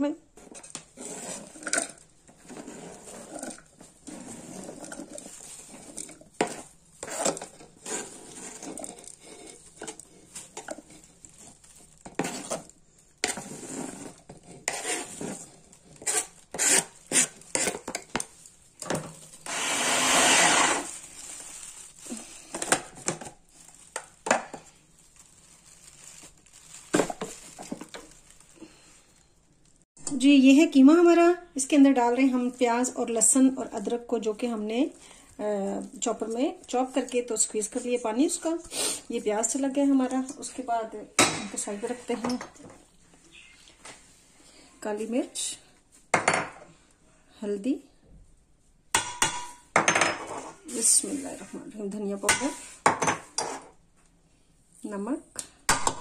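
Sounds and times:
vegetables scraped off cutting board: 12.2s - 18.0s, 19.4s - 21.0s.

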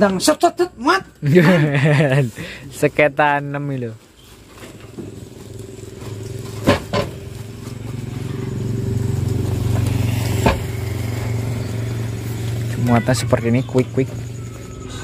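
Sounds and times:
engine humming: 1.1s - 15.0s
parts knocking on truck bed: 6.6s - 7.2s.

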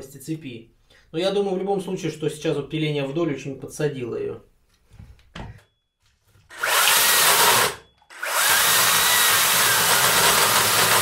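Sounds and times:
electric chainsaw cutting log: 6.5s - 11.0s.

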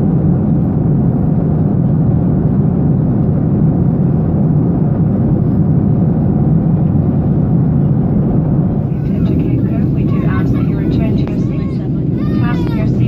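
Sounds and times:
jet engine rumble: 0.0s - 13.0s.

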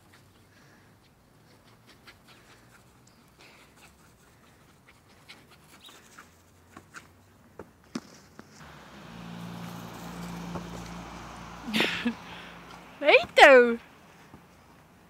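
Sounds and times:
paws and ball rustling on grass: 0.0s - 13.3s
dog panting: 1.4s - 6.3s.

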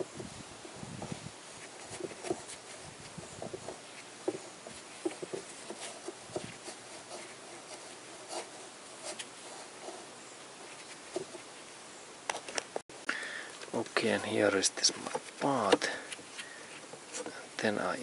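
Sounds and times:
light rubbing: 0.0s - 11.7s.

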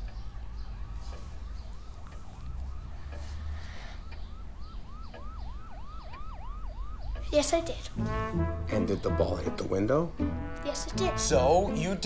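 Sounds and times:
emergency siren yelping: 0.3s - 9.6s.

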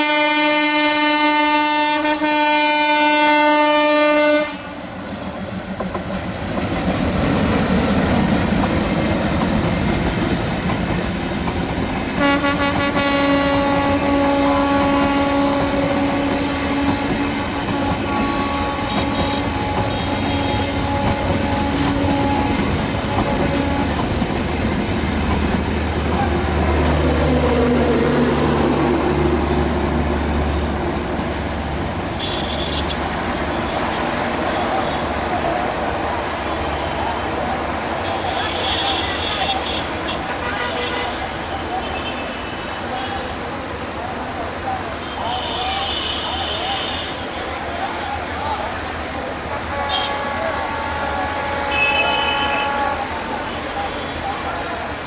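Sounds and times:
locomotive air horn blasts: 0.0s - 4.8s, 12.2s - 24.2s, 32.2s - 35.1s, 38.0s - 43.3s, 45.1s - 47.5s, 49.6s - 54.3s
train rumble and wheel noise: 0.0s - 55.0s.

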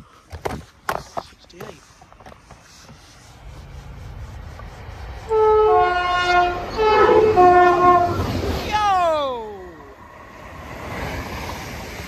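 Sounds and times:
train rumbling: 1.5s - 12.0s
two-tone train horn: 5.3s - 8.4s.

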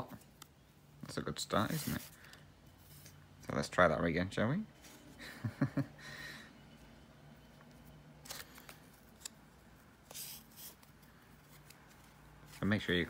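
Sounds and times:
soft thread rustles: 6.7s - 13.0s.

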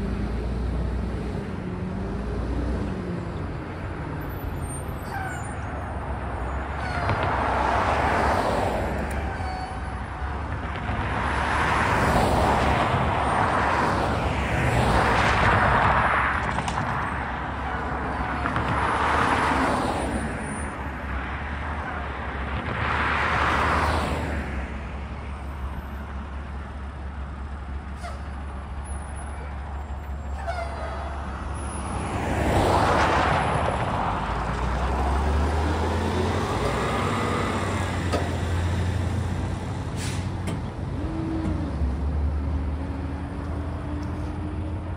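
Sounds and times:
cars passing with tyre swish: 0.0s - 44.9s
truck diesel engine rumble: 24.7s - 44.9s.

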